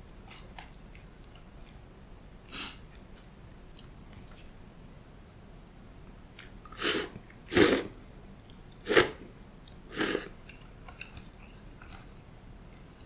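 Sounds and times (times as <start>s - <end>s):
person slurping noodles: 6.7s - 7.9s, 8.8s - 9.2s, 9.9s - 10.4s.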